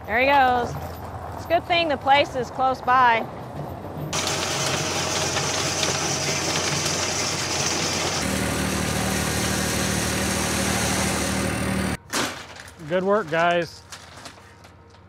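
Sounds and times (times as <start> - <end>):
engine running: 0.6 - 12.0.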